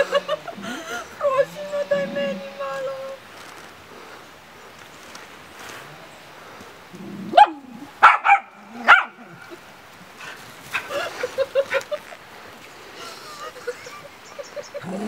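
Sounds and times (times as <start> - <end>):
dogs barking: 7.3 - 9.5.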